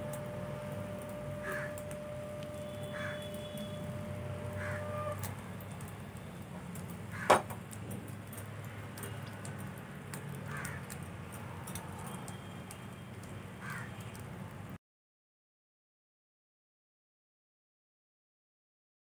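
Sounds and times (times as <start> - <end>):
low steady hum: 0.0 - 7.0.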